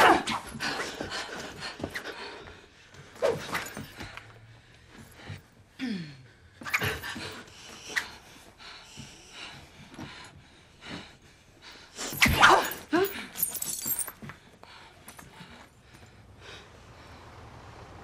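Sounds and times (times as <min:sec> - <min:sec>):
hard breathing: 0:00.5 - 0:17.6
glass shattering: 0:12.1 - 0:14.1
glass pieces tinkling: 0:12.1 - 0:14.2.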